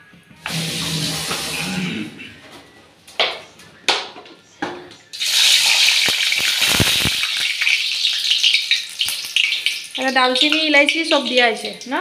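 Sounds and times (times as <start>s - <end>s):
hot oil sizzling and crackling: 5.1s - 12.0s.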